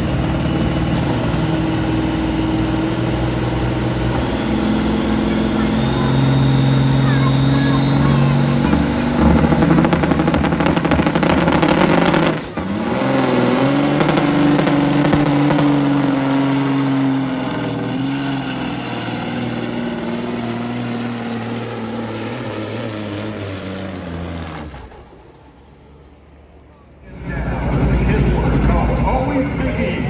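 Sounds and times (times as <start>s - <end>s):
diesel truck engines under load: 0.0s - 30.0s
steady engine drone: 0.0s - 30.0s
high whine: 4.1s - 23.5s.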